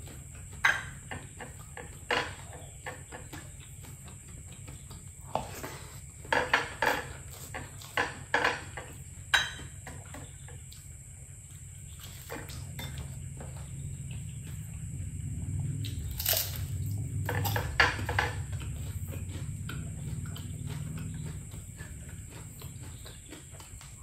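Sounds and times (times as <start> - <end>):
chewing and mouth noises: 0.0 - 24.0
dish clinking: 9.3 - 9.7
low hum: 11.1 - 24.0.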